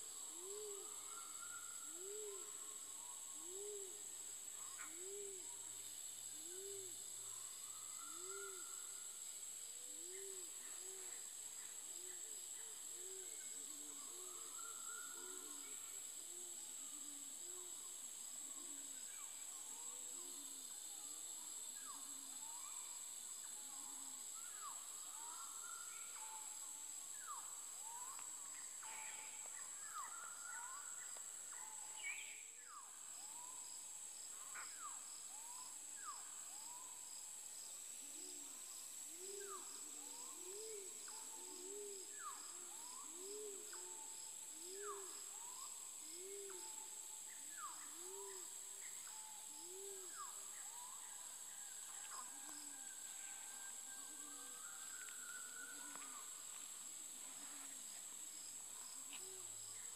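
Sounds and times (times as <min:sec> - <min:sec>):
high insect drone: 0:00.0 - 0:59.9.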